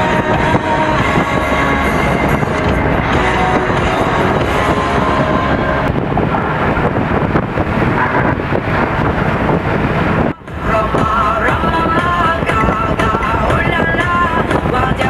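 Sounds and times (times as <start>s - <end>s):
road noise: 0.0s - 15.0s
wind buffeting microphone: 0.0s - 15.0s
wind rush: 0.0s - 15.0s.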